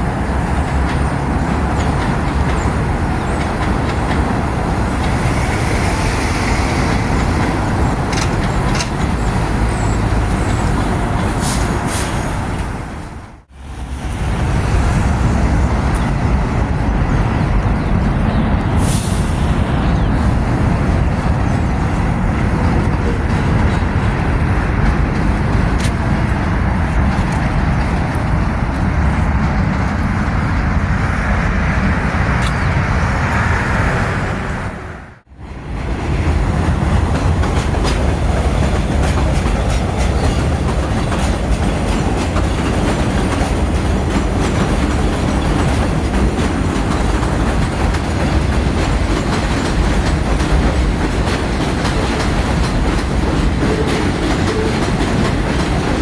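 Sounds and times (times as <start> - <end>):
street traffic noise: 0.0 - 56.0.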